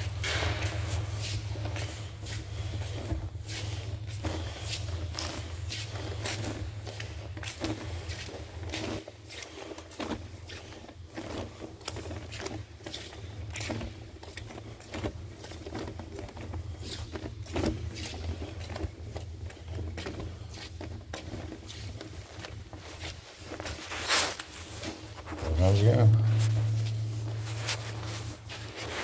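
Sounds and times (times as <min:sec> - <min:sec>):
steady low rumble: 0:25.3 - 0:29.0.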